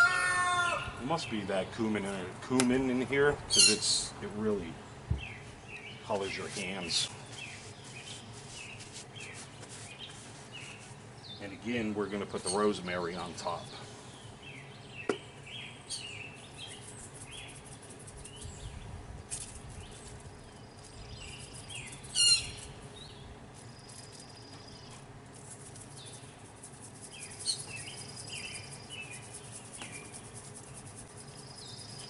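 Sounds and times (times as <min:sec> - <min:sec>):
birds chirping and calling: 0:03.5 - 0:04.1, 0:05.1 - 0:25.0, 0:25.8 - 0:32.0
insects buzzing: 0:13.2 - 0:32.0.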